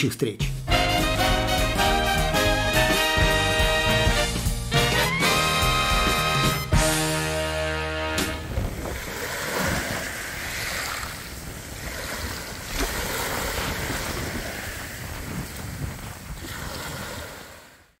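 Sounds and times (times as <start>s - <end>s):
wind buffeting microphone: 8.4s - 17.7s
waves washing on pebble beach: 8.6s - 17.8s.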